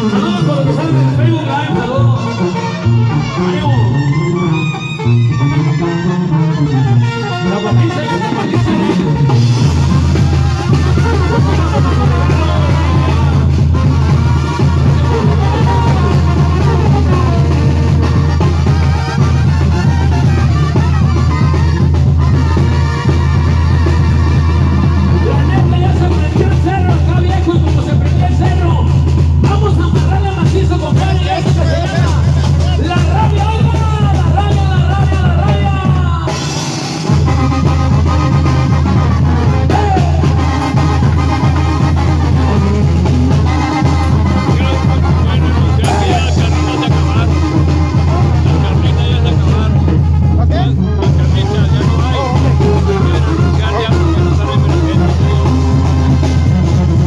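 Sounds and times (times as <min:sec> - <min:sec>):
brass section playing: 0:00.0 - 0:57.0
drums: 0:00.0 - 0:57.0
heavy bass: 0:00.0 - 0:57.0
person singing: 0:10.2 - 0:13.6, 0:14.7 - 0:18.1.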